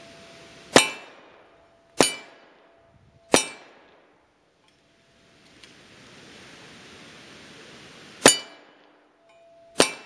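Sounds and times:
bullets clanging on steel target: 0.7 - 1.2, 1.9 - 3.9, 8.2 - 10.0.

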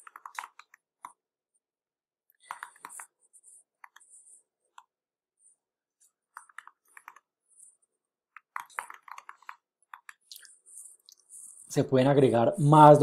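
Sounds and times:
keyboard typing: 0.0 - 1.2, 2.4 - 4.9, 6.1 - 11.4.

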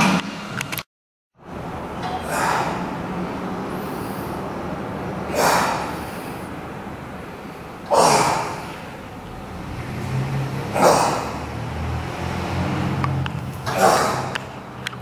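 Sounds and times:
man exhaling forcefully: 5.3 - 6.5, 10.7 - 11.4.

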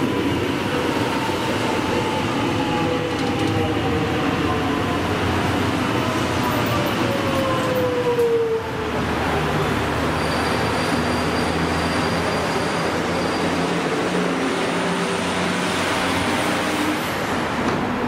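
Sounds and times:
train hum and wheel noise: 0.0 - 10.2, 10.9 - 18.0.

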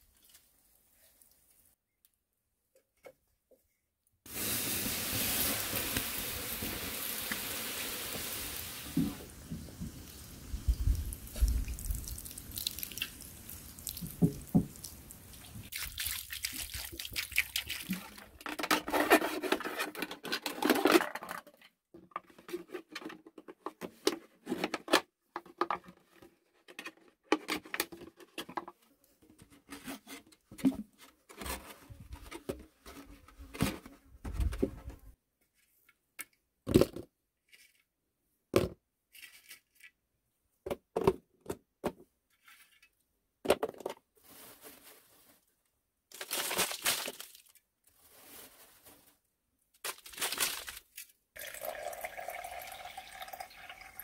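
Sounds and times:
water trickling and dripping: 10.5 - 17.9, 51.4 - 54.0
plastic crackling: 46.1 - 51.2.

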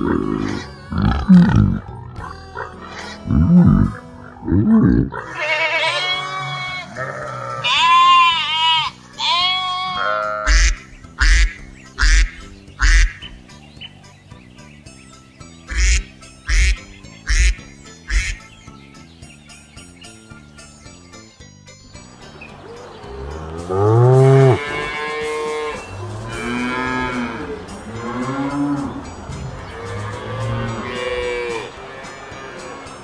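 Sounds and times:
pig grunts: 0.0 - 5.4
background music: 0.0 - 33.0
geese honking: 7.6 - 13.4, 15.7 - 18.6, 23.2 - 33.0.

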